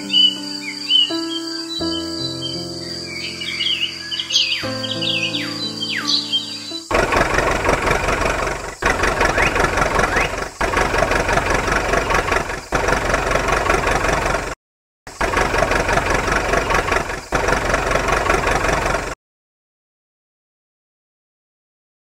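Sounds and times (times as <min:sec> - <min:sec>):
engine running steadily: 0:06.9 - 0:19.2.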